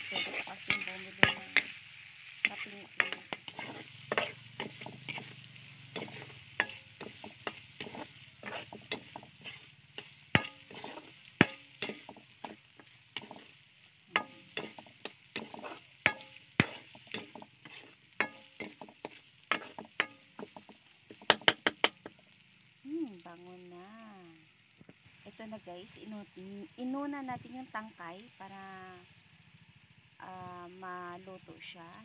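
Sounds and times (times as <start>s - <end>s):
metal utensil scraping a wok: 0.0s - 22.2s
food sizzling in oil: 0.0s - 30.4s.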